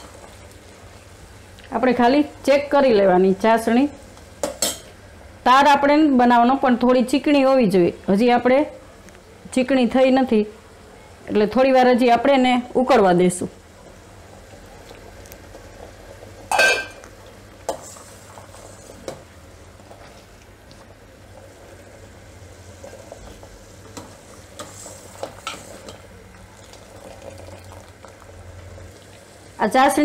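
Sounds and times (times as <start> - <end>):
sugar syrup boiling with fizz: 0.0 - 4.6, 12.6 - 30.0
ladle clinking against pot: 16.5 - 17.0.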